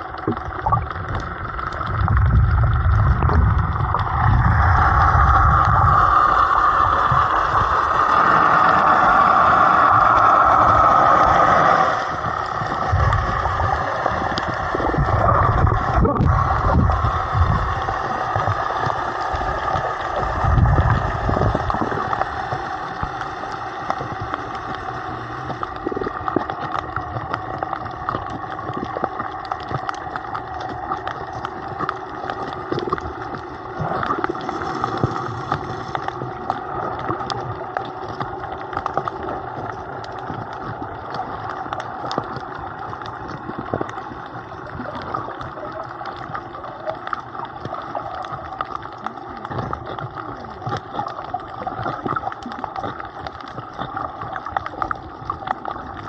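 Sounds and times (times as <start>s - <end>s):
crackling clicks: 0.0s - 56.0s
low rumbling water movement: 0.0s - 56.0s
underwater hum: 0.0s - 56.0s.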